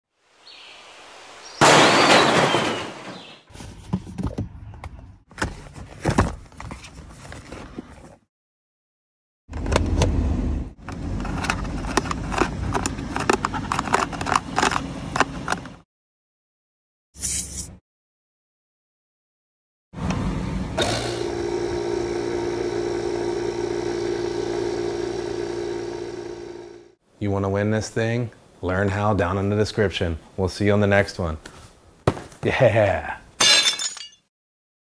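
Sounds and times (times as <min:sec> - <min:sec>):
small air compressor humming: 0:20.2 - 0:27.0.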